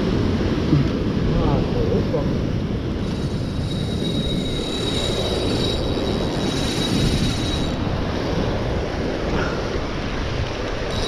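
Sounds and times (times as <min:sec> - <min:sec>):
wind buffeting microphone: 0:00.0 - 0:11.0
thin high whine: 0:02.9 - 0:08.6.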